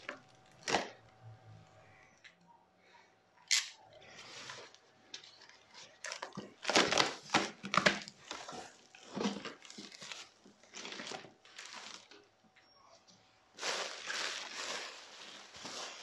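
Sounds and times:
bubble wrap crinkling: 0:00.0 - 0:01.0, 0:04.0 - 0:12.4, 0:13.5 - 0:16.0.

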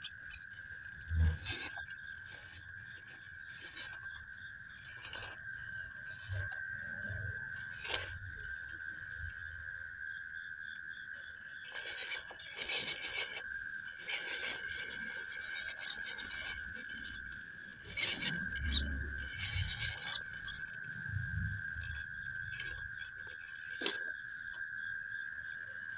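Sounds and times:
high insect drone: 0:00.0 - 0:25.9
rc car grinding over wood: 0:01.0 - 0:05.4, 0:06.0 - 0:08.2, 0:11.7 - 0:24.6.

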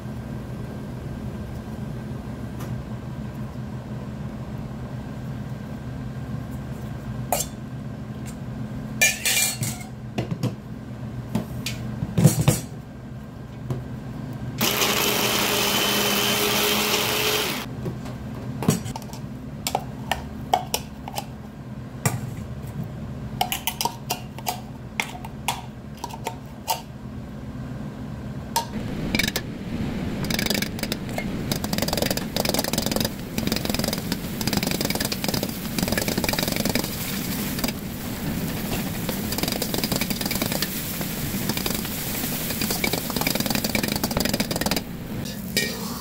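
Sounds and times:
steady low hum: 0:17.6 - 0:45.7
food sizzling: 0:28.8 - 0:46.0
ladle scraping in a wok: 0:45.2 - 0:46.0.

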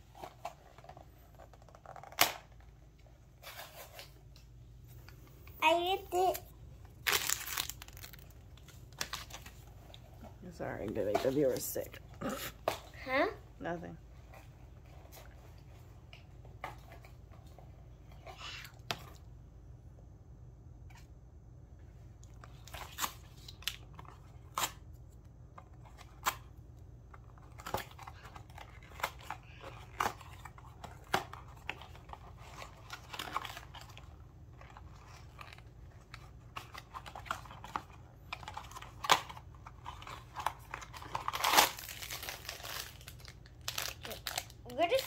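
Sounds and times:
paper and cardboard rustling: 0:00.0 - 0:04.9
cardboard packaging torn open: 0:06.1 - 0:09.5, 0:27.4 - 0:45.0.

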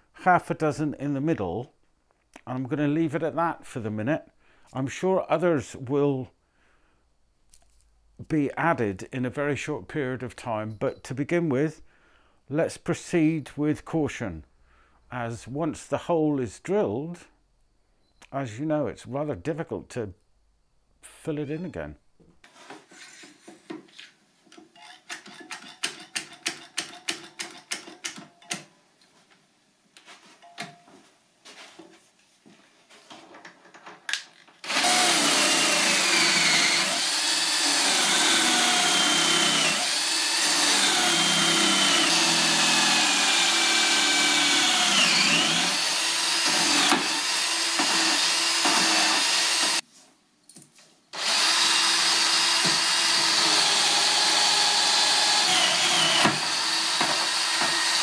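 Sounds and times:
power drill boring into wood: 0:34.6 - 0:49.8, 0:51.2 - 0:58.0.

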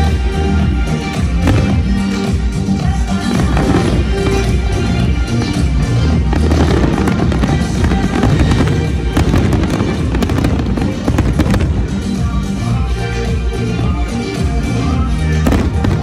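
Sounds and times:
music: 0:00.0 - 0:16.0
firework sharp cracks: 0:03.2 - 0:12.5.

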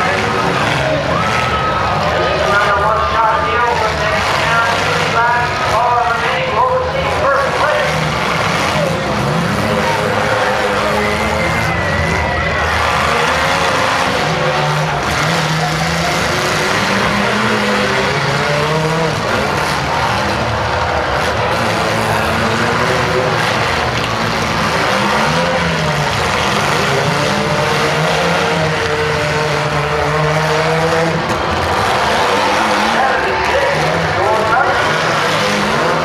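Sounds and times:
car engines revving: 0:00.0 - 0:36.0.

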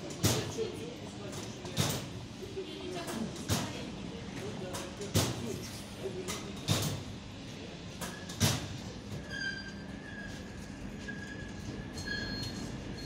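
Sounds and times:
high-pitched wheel squeal: 0:09.2 - 0:13.0.

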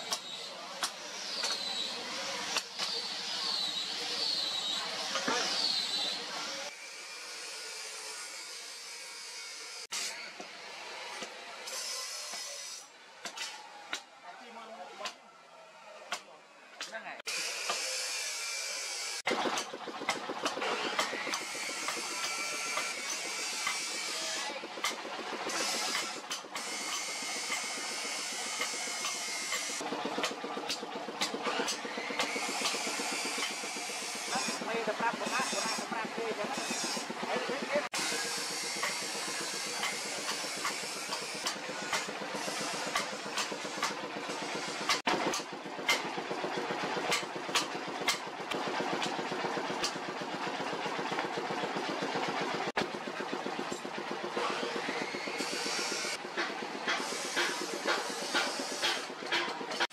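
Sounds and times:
hammer striking hot steel on anvil: 0:52.9 - 0:59.9
air blower hissing: 0:56.8 - 0:59.4.

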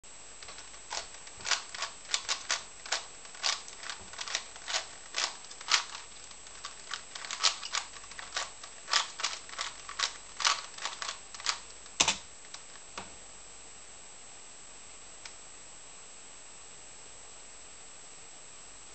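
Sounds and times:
puzzle cube layers clicking: 0:00.4 - 0:12.6.

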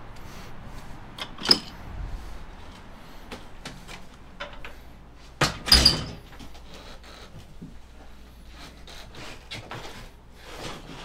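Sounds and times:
door opening and shutting: 0:01.2 - 0:01.8, 0:05.4 - 0:06.3.

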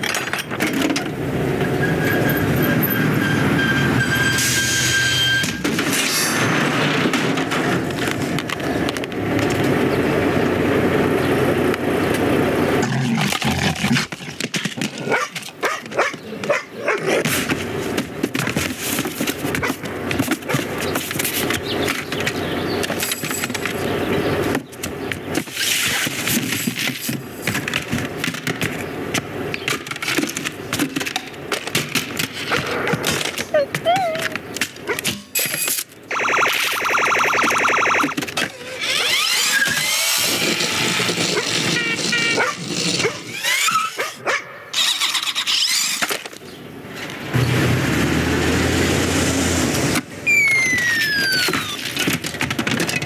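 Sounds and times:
toys clattering over cardboard boxes: 0:00.0 - 0:01.2, 0:05.4 - 0:09.8, 0:12.8 - 0:36.0, 0:38.0 - 0:43.9, 0:50.0 - 0:53.0
low rumble of moving truck: 0:00.0 - 0:13.0, 0:15.0 - 0:34.9, 0:46.4 - 0:53.0
dog sounds: 0:15.0 - 0:17.3, 0:32.4 - 0:35.1
truck engine rumbling past: 0:47.2 - 0:51.0
high squealing whines falling in pitch: 0:50.2 - 0:51.8
short cartoon whines and knocks: 0:50.3 - 0:52.2.

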